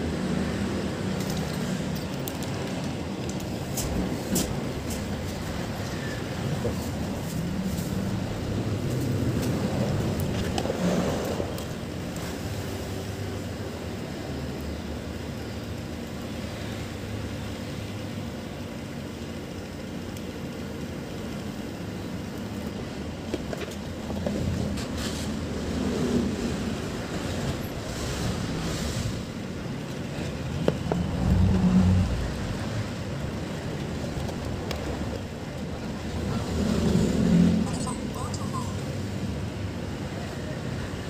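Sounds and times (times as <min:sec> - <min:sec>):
low background rumble: 0:17.4 - 0:40.1.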